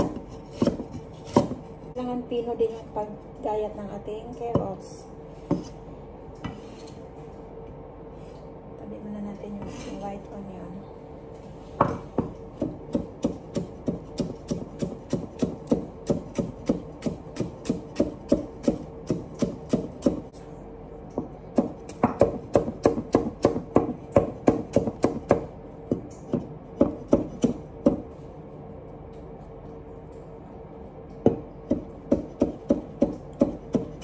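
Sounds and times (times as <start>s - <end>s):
cleaver chopping on wooden board: 0.0s - 1.6s.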